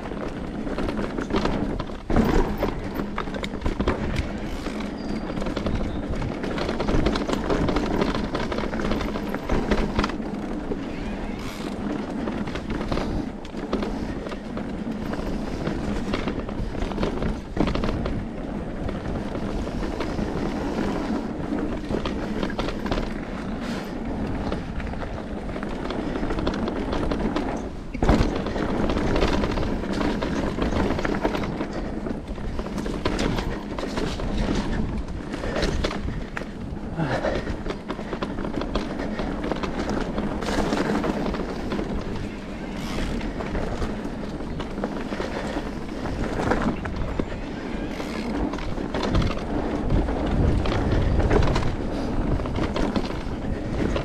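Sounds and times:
bike rattling and knocking: 0:00.0 - 0:54.0
tyres on dirt: 0:00.0 - 0:54.0.

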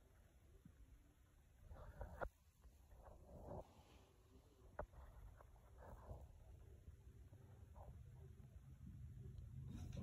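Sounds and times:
soft rustle: 0:01.6 - 0:06.6.

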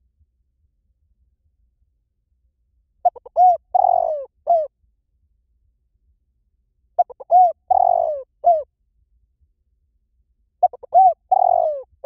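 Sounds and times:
dove cooing: 0:03.0 - 0:04.7, 0:07.0 - 0:08.6, 0:10.6 - 0:12.0.

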